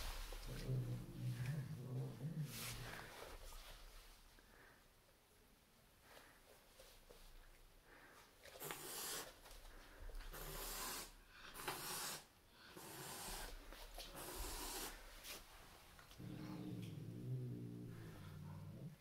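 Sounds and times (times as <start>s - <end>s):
cat growling: 0.1s - 3.2s, 16.1s - 19.0s
cat hissing: 8.6s - 9.4s, 10.3s - 15.1s.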